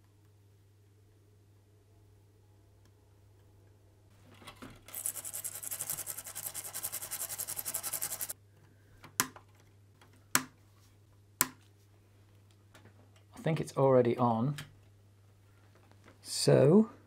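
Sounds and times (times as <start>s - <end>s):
scrubbing on circuit board: 4.9s - 8.4s.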